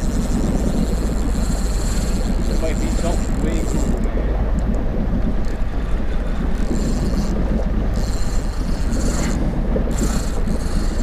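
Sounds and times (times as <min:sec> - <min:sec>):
fishing reel whirring: 0:00.0 - 0:04.7, 0:05.3 - 0:11.0
wind rumble on microphone: 0:00.0 - 0:11.0.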